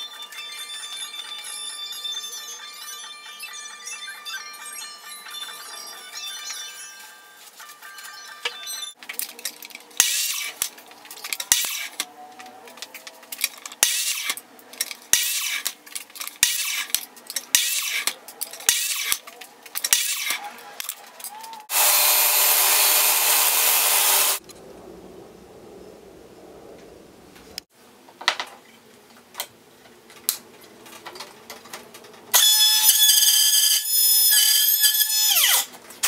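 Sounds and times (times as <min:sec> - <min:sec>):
miter saw cutting wood: 0:21.7 - 0:24.4.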